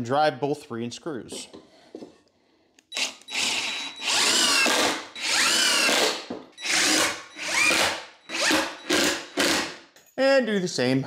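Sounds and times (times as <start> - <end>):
impact driver driving screws: 3.0 - 9.8.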